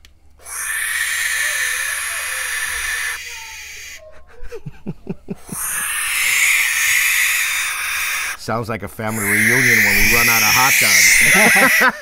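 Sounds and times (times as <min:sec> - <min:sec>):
owlets hissing: 0:09.0 - 0:12.0.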